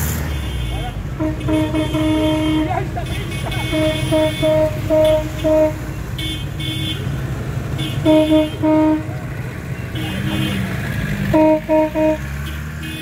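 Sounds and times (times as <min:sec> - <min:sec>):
car engines running: 0:00.0 - 0:13.0
car horns tooting: 0:00.2 - 0:13.0.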